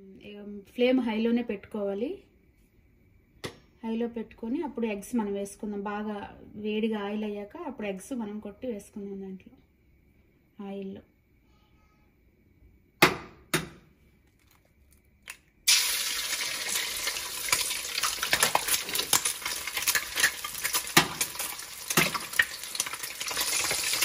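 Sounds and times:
egg sizzling in hot oil: 15.6s - 24.0s.

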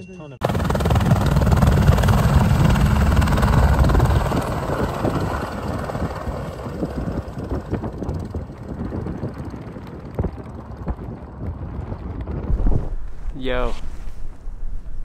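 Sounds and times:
helicopter rotor and engine: 0.0s - 12.5s.

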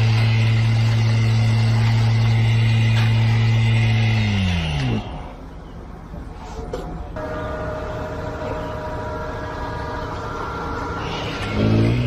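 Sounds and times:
power screed engine running: 0.0s - 5.5s, 7.2s - 12.0s.

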